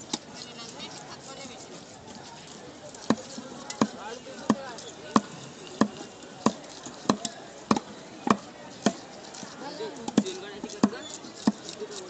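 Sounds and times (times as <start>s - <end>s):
cleaver chopping fish on wood: 3.0s - 9.0s, 10.0s - 11.8s.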